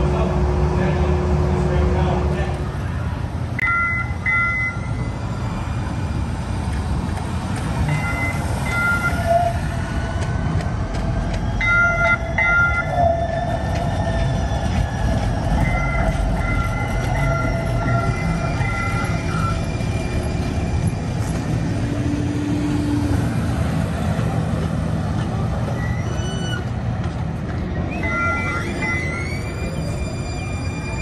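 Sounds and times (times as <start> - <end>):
tram rumbling over rails: 0.0 - 31.0.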